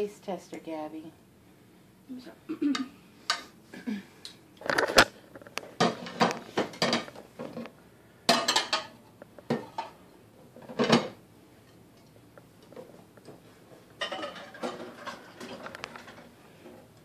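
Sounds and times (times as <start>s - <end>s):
cutlery clinking on a plate: 14.0s - 15.6s.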